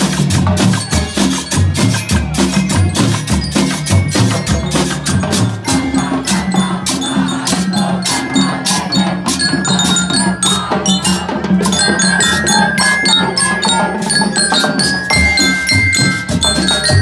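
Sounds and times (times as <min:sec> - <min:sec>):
bell lyres ringing: 0:00.0 - 0:17.0
marching drums beating: 0:00.0 - 0:17.0.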